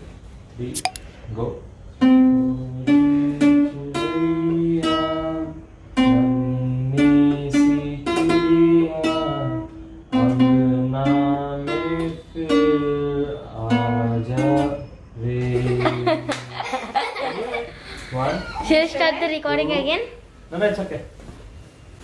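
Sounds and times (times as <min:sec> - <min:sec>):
acoustic guitar plucked melody: 0:02.0 - 0:16.5.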